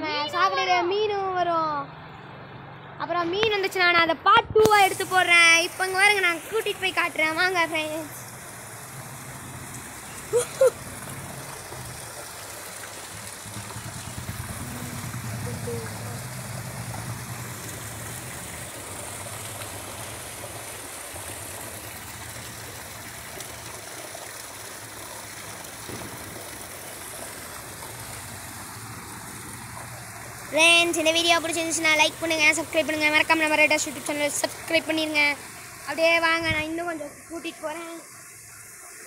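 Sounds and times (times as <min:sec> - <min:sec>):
water rushing along concrete drain: 0:03.4 - 0:39.0.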